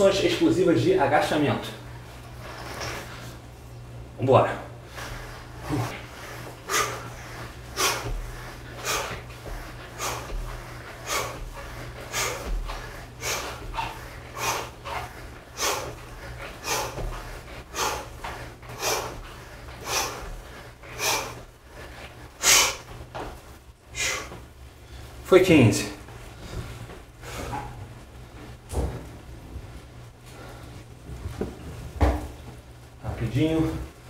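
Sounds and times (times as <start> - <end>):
man's forceful exhalations: 5.0 - 21.4.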